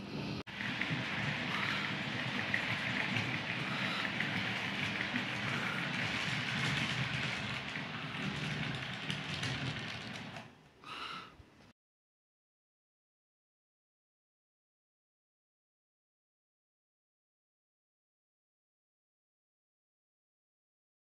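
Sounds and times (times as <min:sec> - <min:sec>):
low motor hum: 0:00.0 - 0:10.5
model train wheels rattling on rails: 0:00.5 - 0:10.5.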